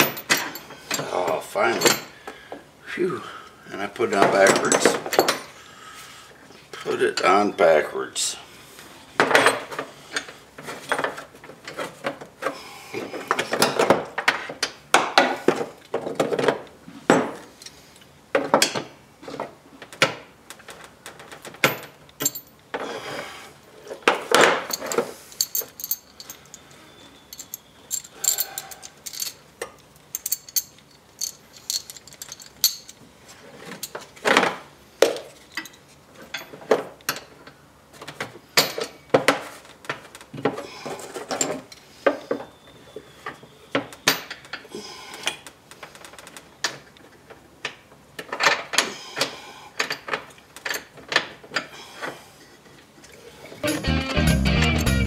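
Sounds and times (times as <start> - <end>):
metal tools clinking: 0.0 - 2.2, 4.4 - 5.6, 21.6 - 22.6, 24.6 - 33.0, 35.4 - 37.3.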